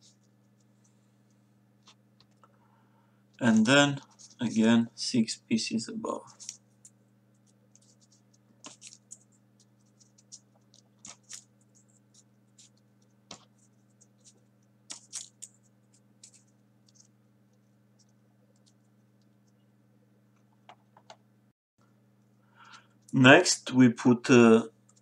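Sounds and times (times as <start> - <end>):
steady low hum: 0.0 - 25.0
paper rustling and clicking: 6.3 - 17.1.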